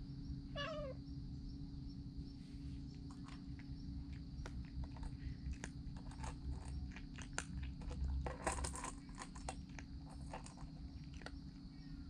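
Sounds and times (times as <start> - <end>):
cat crunching food: 3.1 - 12.0.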